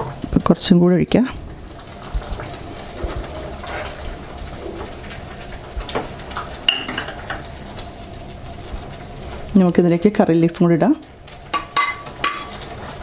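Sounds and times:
stew bubbling: 0:00.0 - 0:13.0
ladle scraping and tapping pan: 0:11.5 - 0:13.0.

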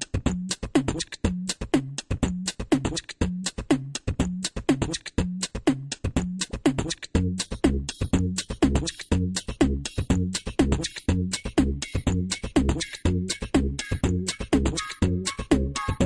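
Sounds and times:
percussive beat with clicks: 0:00.0 - 0:16.0.

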